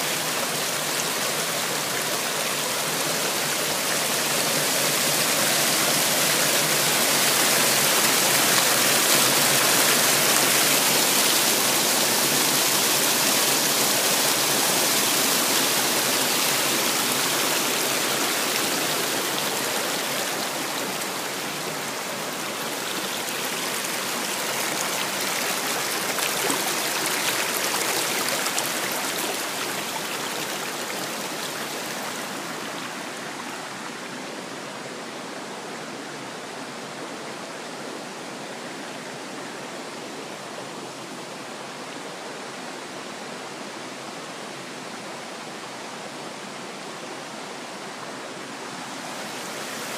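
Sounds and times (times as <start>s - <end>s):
water rushing over rocks: 0.0s - 34.9s, 35.7s - 49.9s.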